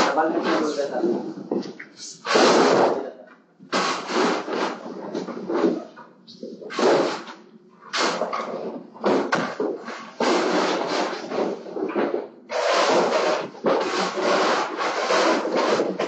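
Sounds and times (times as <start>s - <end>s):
broom scrubbing tiled floor: 3.7s - 16.0s.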